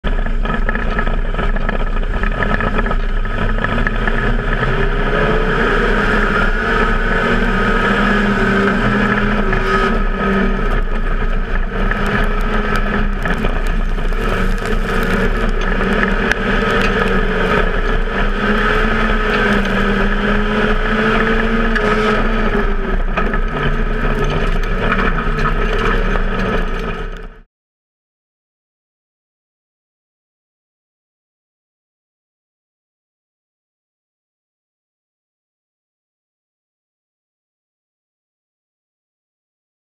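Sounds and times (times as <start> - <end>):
wind noise: 0.0 - 27.3
car engine running hard: 0.0 - 27.5
tyre noise: 0.4 - 27.2.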